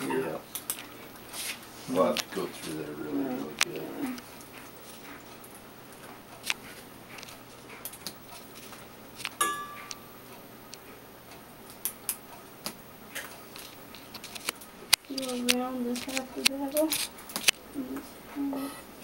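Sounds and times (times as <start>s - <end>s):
ringing metal clink: 9.4s - 10.0s.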